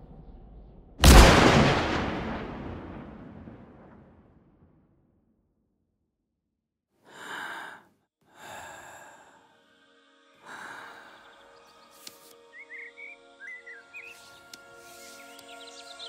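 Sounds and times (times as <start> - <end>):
person breathing: 7.1 - 9.8, 10.4 - 11.6
soft music: 8.8 - 16.0
bird chirping: 10.6 - 16.0.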